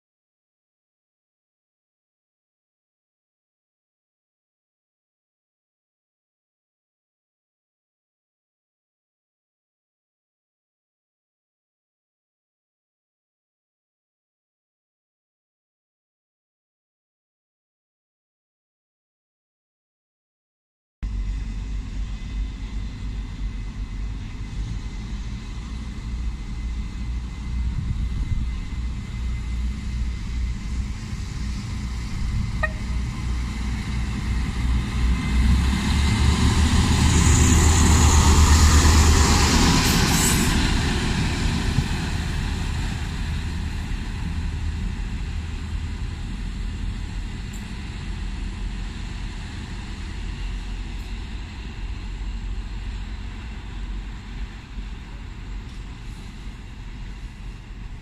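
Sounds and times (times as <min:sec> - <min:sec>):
diesel railcar rumbling past: 0:21.0 - 0:58.0.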